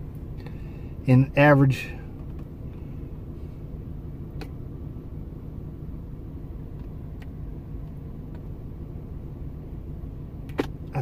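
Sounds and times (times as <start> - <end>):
low rumble inside vehicle cab: 0.0 - 11.0.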